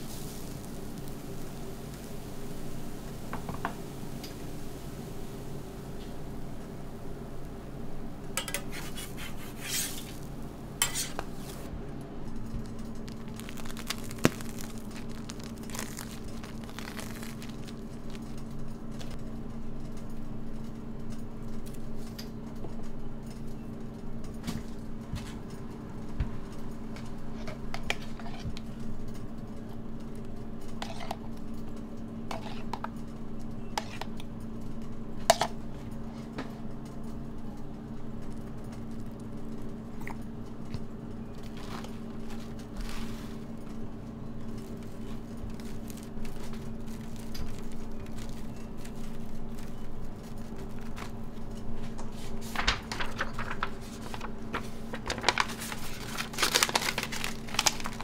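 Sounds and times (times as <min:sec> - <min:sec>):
steady low hum: 0:00.0 - 0:58.0
metal tools scraping and clinking: 0:10.8 - 0:11.3.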